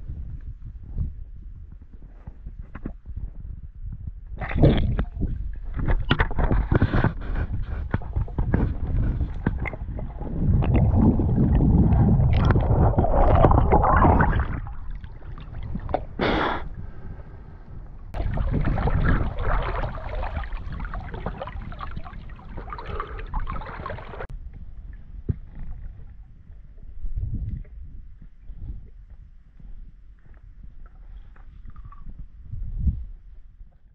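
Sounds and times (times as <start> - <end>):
water sloshing against camera: 4.4 - 17.1, 18.1 - 24.3.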